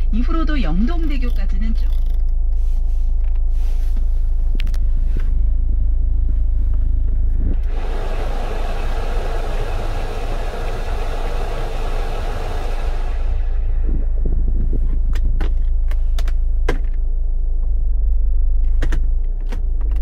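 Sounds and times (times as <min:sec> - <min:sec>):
blower fan air rushing: 0:02.6 - 0:16.8
car engine idling: 0:02.6 - 0:18.9.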